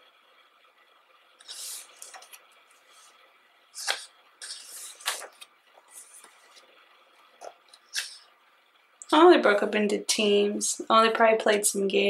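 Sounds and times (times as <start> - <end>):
paper pages swishing: 3.8 - 6.7.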